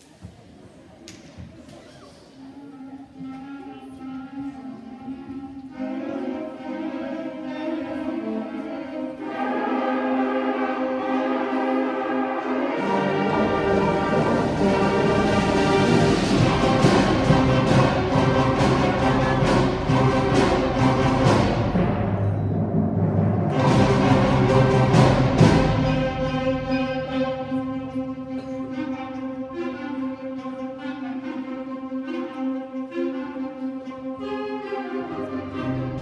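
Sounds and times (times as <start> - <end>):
concert band playing: 12.8 - 28.0.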